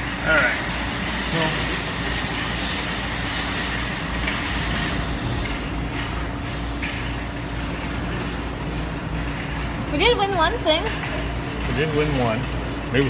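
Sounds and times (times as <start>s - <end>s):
faint constant hum: 0.0s - 13.0s
amusement arcade din: 7.2s - 13.0s.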